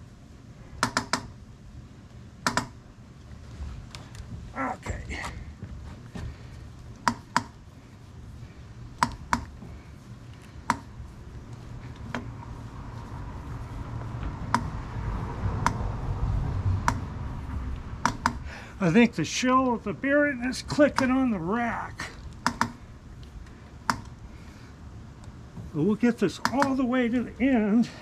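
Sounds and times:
sharp irregular clicks: 0:00.8 - 0:01.4, 0:02.4 - 0:02.8, 0:06.9 - 0:07.6, 0:09.0 - 0:09.6, 0:10.6 - 0:10.9, 0:15.6 - 0:15.8, 0:16.8 - 0:17.1, 0:17.7 - 0:18.5, 0:20.8 - 0:21.2, 0:22.2 - 0:24.2, 0:26.4 - 0:26.8.

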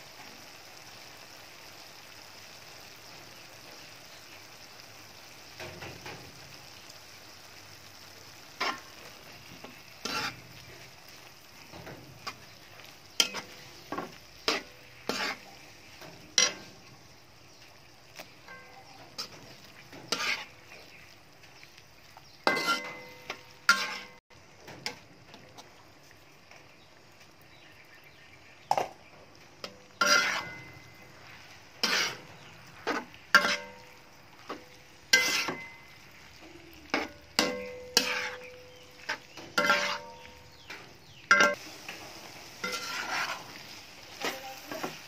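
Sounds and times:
faint sizzle: 0:00.0 - 0:45.0
spatula scraping clanks in wok: 0:08.5 - 0:20.9, 0:22.4 - 0:25.0, 0:29.6 - 0:45.0.

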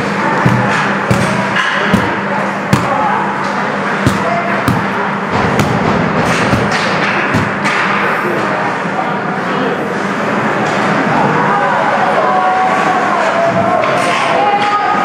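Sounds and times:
echoing indoor rink din: 0:00.0 - 0:15.0
hockey sticks knocking puck: 0:00.4 - 0:08.1.

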